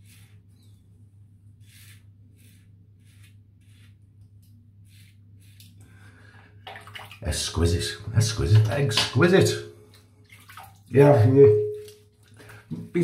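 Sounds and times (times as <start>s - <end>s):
razor scraping stubble: 1.6s - 5.8s.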